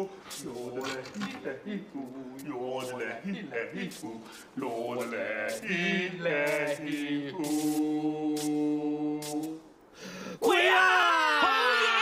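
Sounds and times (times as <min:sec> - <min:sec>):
man chanting: 0:00.0 - 0:09.6.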